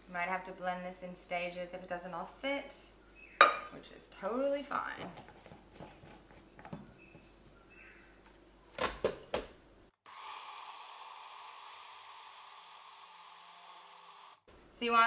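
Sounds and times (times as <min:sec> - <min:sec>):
plastic knocks: 0:08.8 - 0:09.5
blender motor running: 0:10.0 - 0:14.5.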